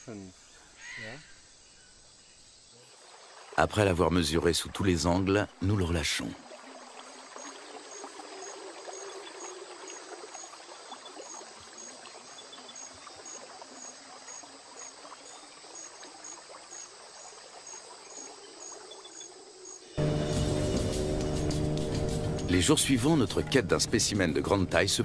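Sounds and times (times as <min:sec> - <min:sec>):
insect chirping: 0:00.0 - 0:25.0
water trickling: 0:02.7 - 0:25.0
loud music: 0:20.0 - 0:25.0.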